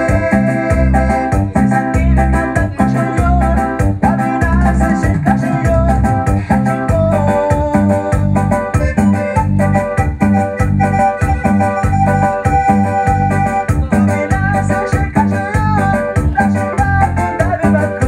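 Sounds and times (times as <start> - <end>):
organ sound keyboard melody: 0.0 - 18.0
steady bass beat: 0.0 - 18.0.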